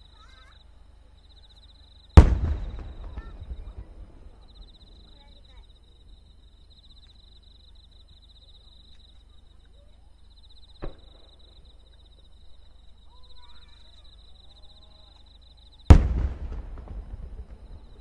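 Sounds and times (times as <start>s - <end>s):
faint distant voices: 0.0s - 18.0s
insects trilling: 0.0s - 18.0s
sharp pop: 2.2s - 4.4s.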